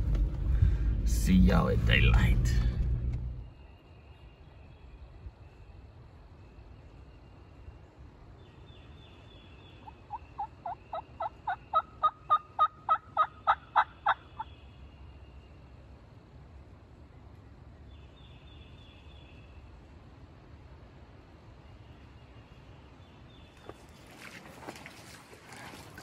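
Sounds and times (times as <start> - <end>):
bird calling: 8.8 - 14.7.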